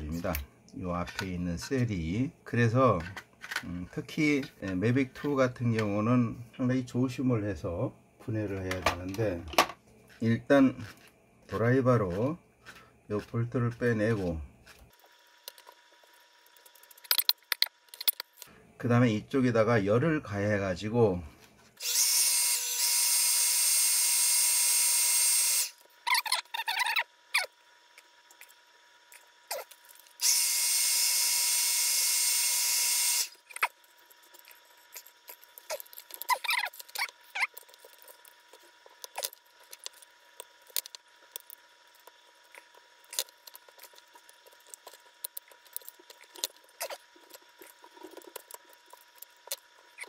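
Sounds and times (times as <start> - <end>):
plastic clicks and scrapes: 3.0 - 3.7, 33.5 - 50.0.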